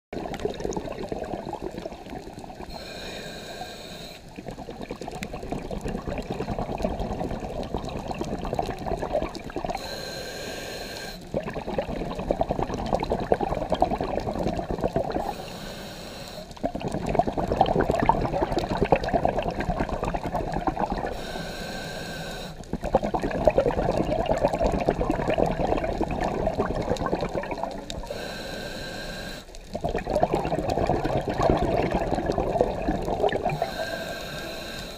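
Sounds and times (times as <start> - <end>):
exhaled bubbles rushing: 0.2 - 2.8, 4.3 - 9.8, 11.3 - 15.3, 16.6 - 21.2, 22.6 - 28.1, 29.6 - 34.7
diver inhaling through regulator: 2.6 - 4.4, 9.7 - 11.4, 15.1 - 16.7, 21.0 - 22.7, 27.5 - 29.6, 33.3 - 34.9.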